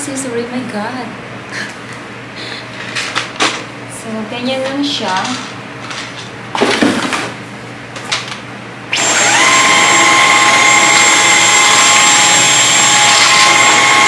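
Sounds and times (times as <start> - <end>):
vacuum cleaner motor whining: 8.9 - 14.0.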